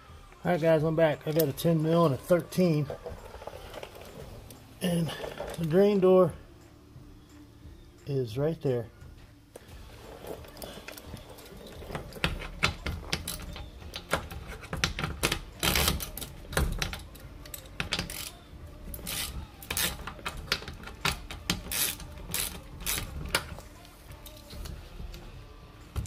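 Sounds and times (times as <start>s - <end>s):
hand ratchet clicking: 10.5s - 23.6s.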